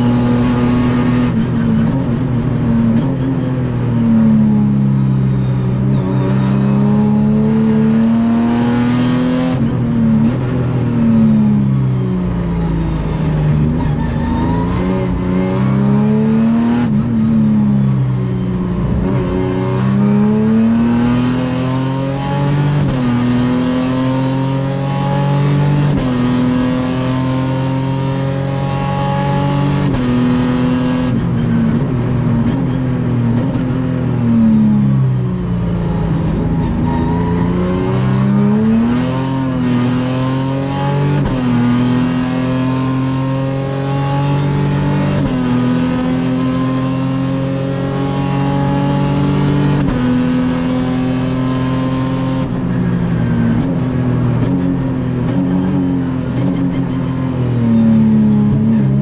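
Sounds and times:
race car engine accelerating: 35.7 - 59.0.

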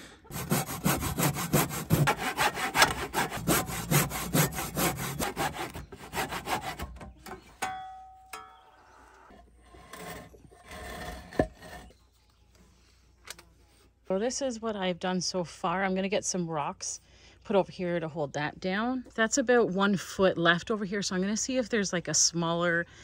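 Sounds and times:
handsaw cutting wire mesh: 0.3 - 7.0.

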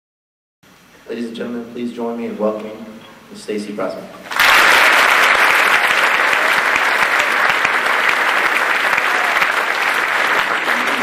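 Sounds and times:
audience applause: 4.3 - 11.0.

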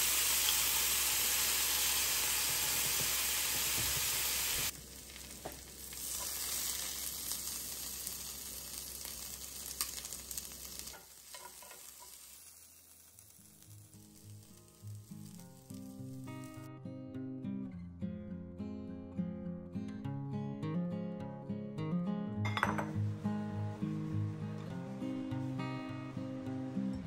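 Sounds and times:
chicken sizzling in a skillet: 0.0 - 16.7
vegetables frying in a pan: 0.0 - 16.7.

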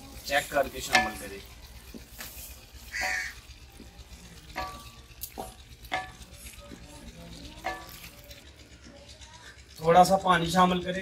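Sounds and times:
food sizzling: 0.0 - 9.0
spatula scraping and knocking pan: 0.4 - 8.2.

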